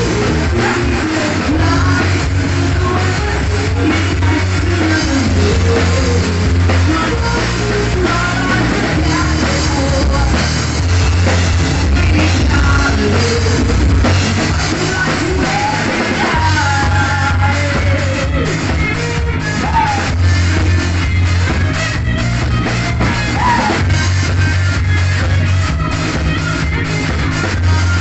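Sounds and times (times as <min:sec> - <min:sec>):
person singing: 0:00.0 - 0:10.7, 0:11.5 - 0:20.8, 0:23.0 - 0:24.0, 0:26.5 - 0:28.0
drum kit: 0:00.0 - 0:28.0
electric guitar: 0:00.0 - 0:28.0.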